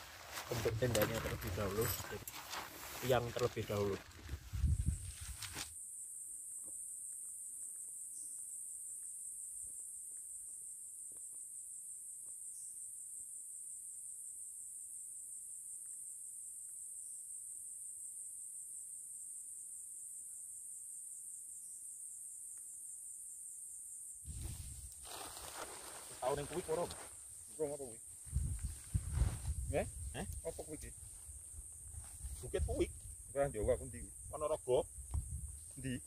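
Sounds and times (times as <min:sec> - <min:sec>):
faint ticks of tent poles: 0:00.0 - 0:05.8, 0:24.5 - 0:27.4, 0:30.1 - 0:32.4
insects chorus shrill drone: 0:04.9 - 0:36.0.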